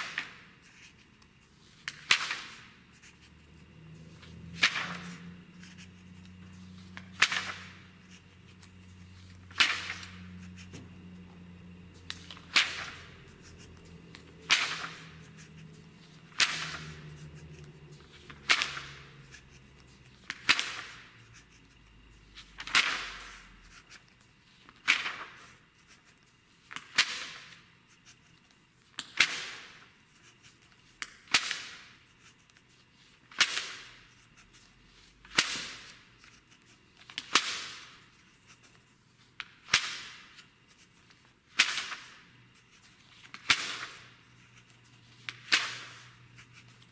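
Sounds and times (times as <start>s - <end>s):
magazine pages turning: 4.0s - 5.8s, 6.5s - 10.3s, 12.1s - 21.1s.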